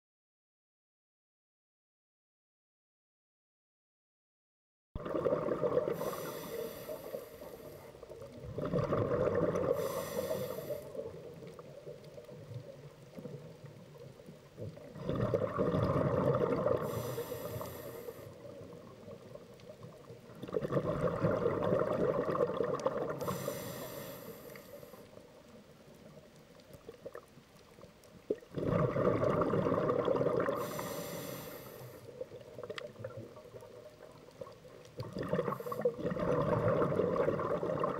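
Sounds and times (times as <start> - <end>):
exhaled bubbles rushing: 5.0 - 13.9, 14.6 - 17.6, 18.3 - 23.8, 28.3 - 31.1, 32.1 - 37.9
diver breathing through regulator: 5.9 - 8.0, 9.5 - 11.1, 16.8 - 18.5, 23.2 - 25.2, 30.5 - 32.1.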